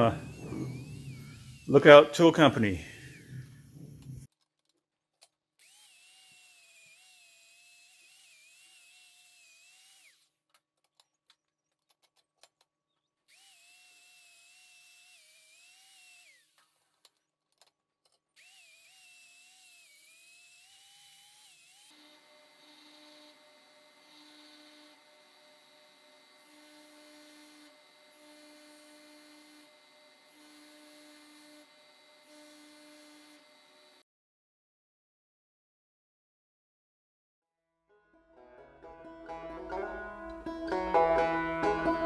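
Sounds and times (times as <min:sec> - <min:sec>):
angle grinder whining on steel: 0:00.0 - 0:04.3, 0:05.6 - 0:10.4, 0:13.0 - 0:17.3, 0:18.1 - 0:34.0
belt grinder humming: 0:00.0 - 0:04.3, 0:05.6 - 0:10.5, 0:13.2 - 0:34.0.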